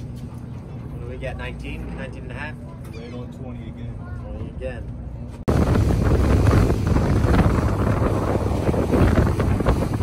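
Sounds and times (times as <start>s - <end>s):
boat engine rumble: 0.0s - 10.0s
wind buffeting microphone: 5.5s - 10.0s.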